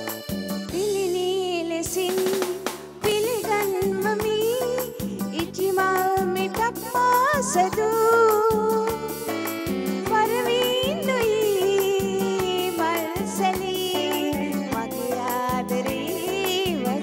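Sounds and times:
background music with steady beat: 0.0 - 17.0.

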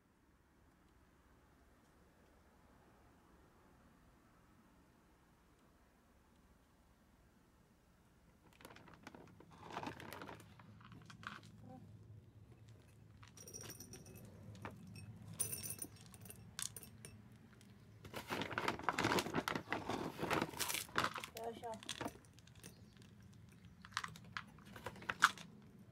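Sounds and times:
dry cat food rattling in a cup: 8.5 - 11.6, 12.6 - 25.9
cat food clinking into a bowl: 12.5 - 19.2, 21.8 - 25.6.

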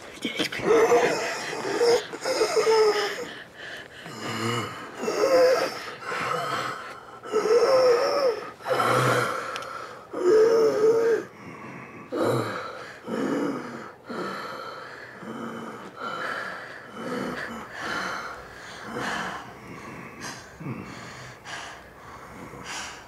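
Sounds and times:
person groaning: 0.5 - 3.3, 4.0 - 9.4
person breathing hard: 0.6 - 23.0.

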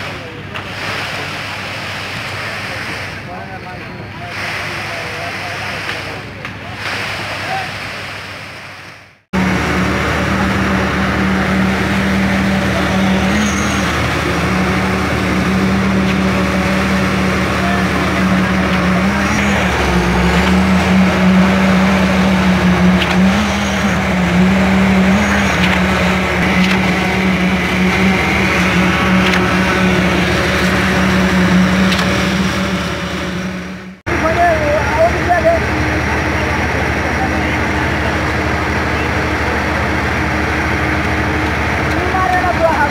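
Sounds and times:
concrete vibrator humming: 9.4 - 42.9.

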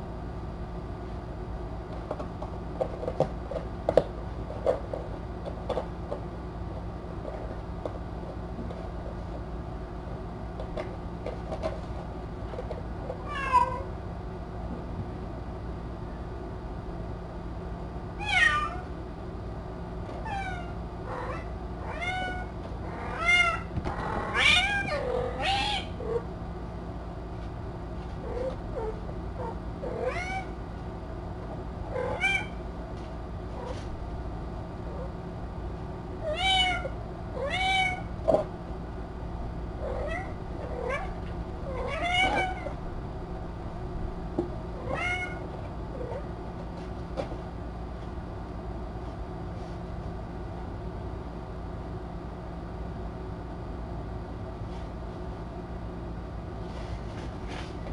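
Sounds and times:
faint steady hum: 0.0 - 57.9
cat meowing: 13.2 - 13.9, 18.2 - 18.9, 20.2 - 26.2, 29.8 - 30.6, 31.9 - 32.6, 36.2 - 38.1, 39.9 - 42.8, 44.8 - 45.4.

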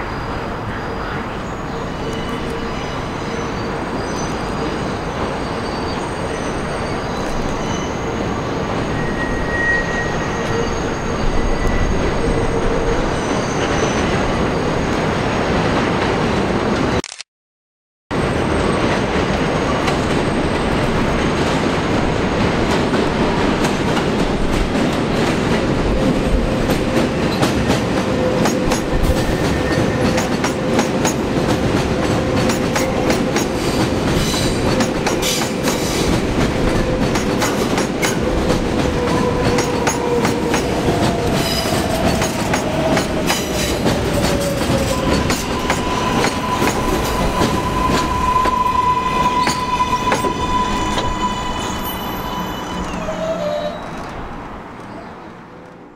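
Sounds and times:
subway train rumbling on track: 0.0 - 17.0, 18.1 - 55.9
wheels squealing on curve: 5.5 - 14.9, 36.7 - 54.2.

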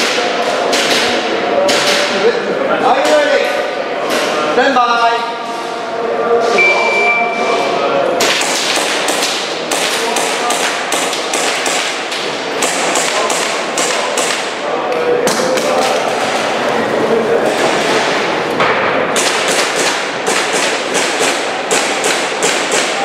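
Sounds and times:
airsoft pistol shots: 8.2 - 12.0, 19.2 - 23.0.

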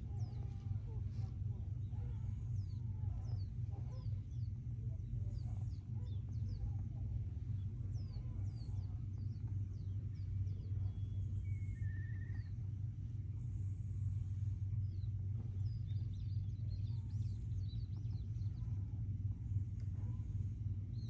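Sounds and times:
small birds chirping: 0.0 - 21.0
steady low rumble: 0.0 - 21.0.

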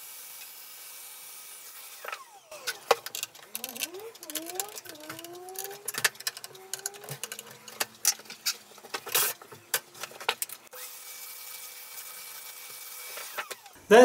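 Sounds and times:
vacuum cleaner motor running: 1.9 - 8.1
plastic parts clicking and knocking: 2.1 - 10.7.

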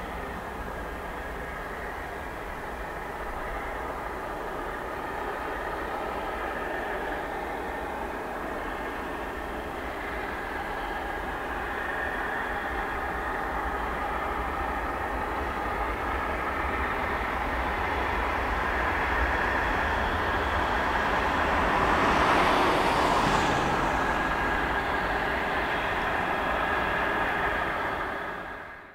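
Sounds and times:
jet plane climbing: 0.0 - 28.9.

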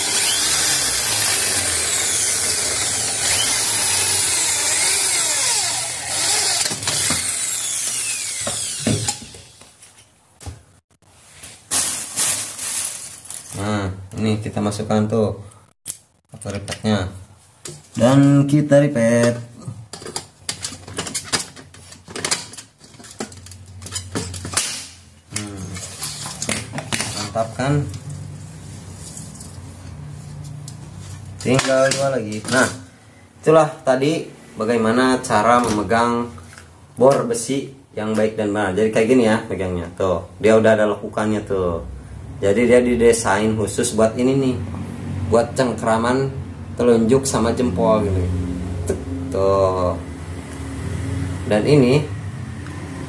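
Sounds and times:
electric drill drilling metal: 0.0 - 9.6.

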